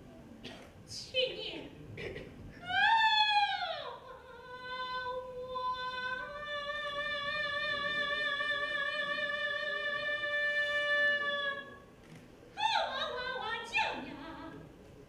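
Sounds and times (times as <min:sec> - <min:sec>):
woman singing sustained high note: 0:02.6 - 0:11.8.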